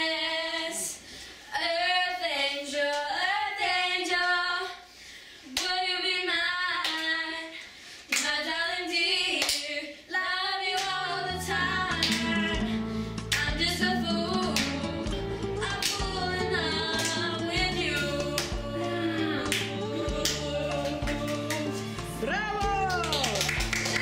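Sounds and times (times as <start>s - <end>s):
girls singing: 0.0s - 4.9s, 5.5s - 22.6s
hands clapping: 6.8s - 7.1s, 8.1s - 8.4s, 9.4s - 9.7s, 10.8s - 11.0s, 11.9s - 12.5s, 13.2s - 13.6s, 14.4s - 14.9s, 15.6s - 16.2s, 16.9s - 18.7s, 19.4s - 24.0s
low instrumental music: 10.9s - 24.0s.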